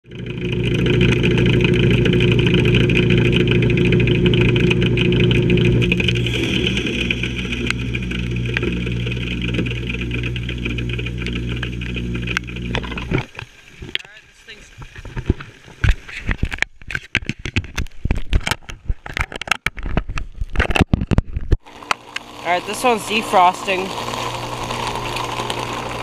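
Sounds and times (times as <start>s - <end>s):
heat pump electric hum: 0.0s - 14.6s, 21.6s - 26.0s.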